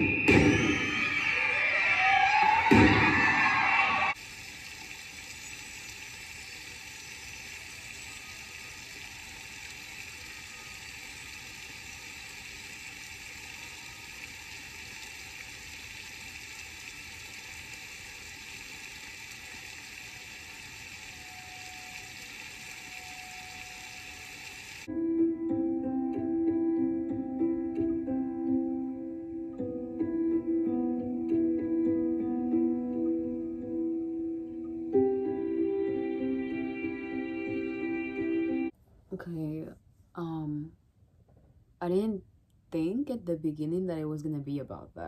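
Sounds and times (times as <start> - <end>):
loud sound cut off: 0.0 - 4.2
steady hiss: 3.6 - 24.9.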